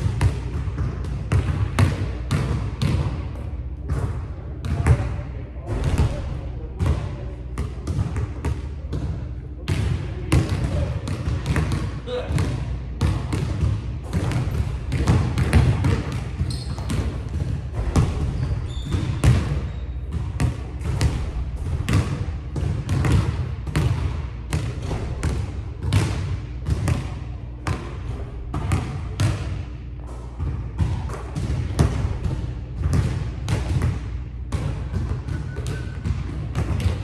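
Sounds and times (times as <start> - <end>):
basketball bouncing on hardwood: 9.7 - 27.0, 30.4 - 37.0.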